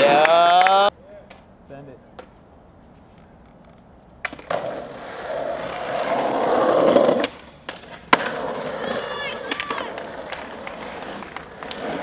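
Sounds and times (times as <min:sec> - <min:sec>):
skateboard wheels rolling on asphalt: 0:02.2 - 0:12.0
skateboard clack on pavement: 0:03.6 - 0:12.0.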